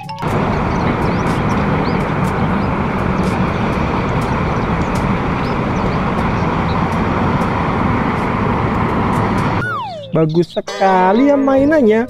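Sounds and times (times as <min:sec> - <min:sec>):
concrete mixer truck running: 0:00.2 - 0:09.6
low hum: 0:00.2 - 0:09.6.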